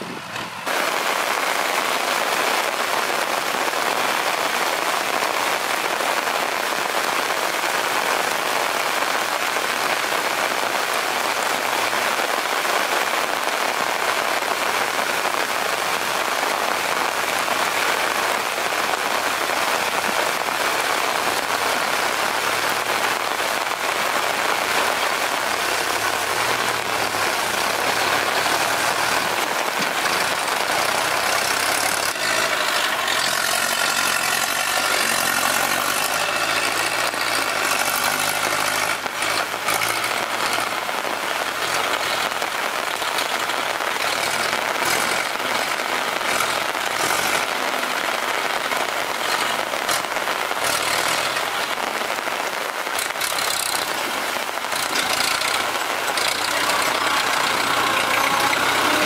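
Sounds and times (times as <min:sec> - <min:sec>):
rain falling on mud and foliage: 0:00.0 - 0:59.0.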